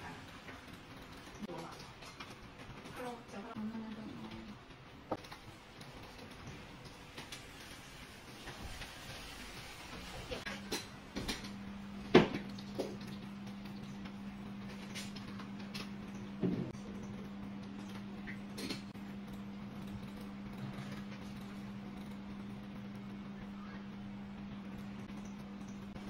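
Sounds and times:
steady low hum: 10.4s - 26.0s.

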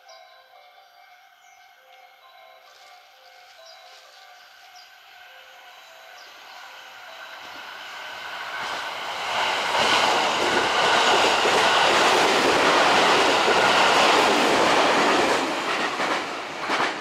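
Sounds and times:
train wheels on rails: 6.1s - 17.0s.

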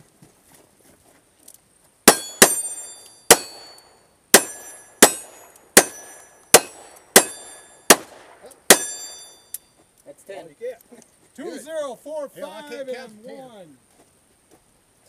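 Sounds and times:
steel target ringing: 2.1s - 8.1s, 8.7s - 9.6s
gunshots: 2.1s - 9.1s.

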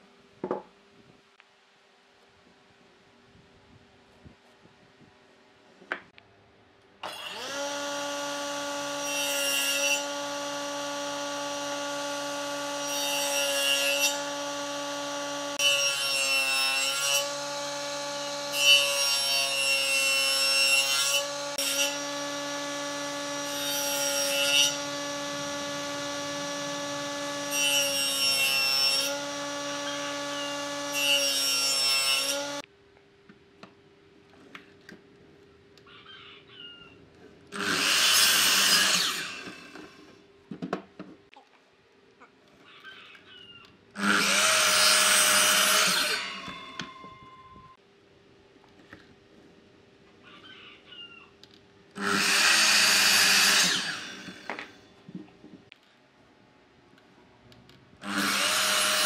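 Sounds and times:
saw cutting wood: 7.0s - 32.6s, 37.5s - 40.1s, 44.0s - 47.1s, 52.0s - 54.8s, 58.0s - 59.0s
table saw motor humming: 7.1s - 16.1s, 20.8s - 32.6s, 37.6s - 40.0s, 52.0s - 54.7s, 58.0s - 59.0s.

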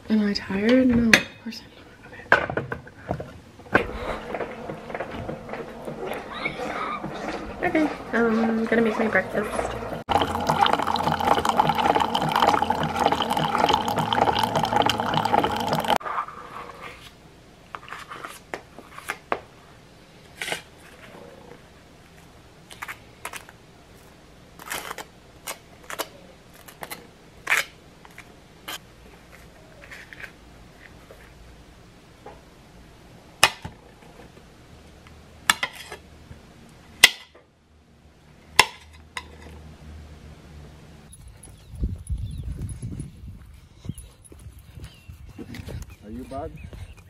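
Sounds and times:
knife scraping and spreading: 17.8s - 19.2s, 24.6s - 28.8s.

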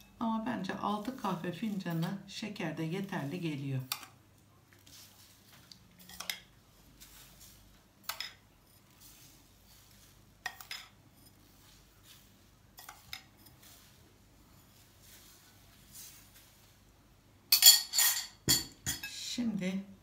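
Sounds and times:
metal spoon clinking on dishes: 6.0s - 6.5s, 8.0s - 8.8s, 10.4s - 11.4s, 12.8s - 13.6s, 17.5s - 19.2s.

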